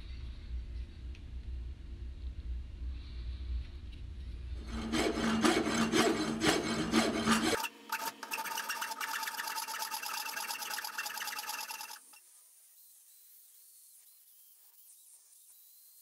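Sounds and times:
hand file rasping on bronze: 4.6 - 12.2.

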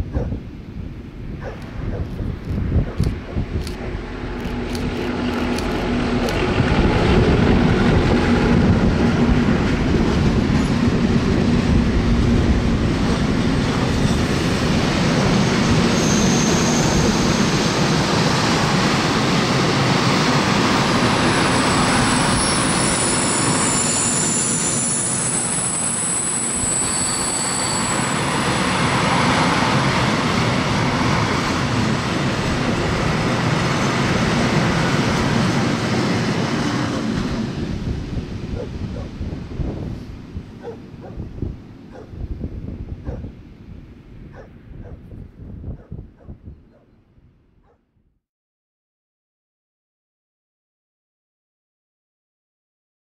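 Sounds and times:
diesel locomotive running: 0.1 - 45.9
high thin wheel squeal: 15.9 - 17.4, 21.3 - 28.8.

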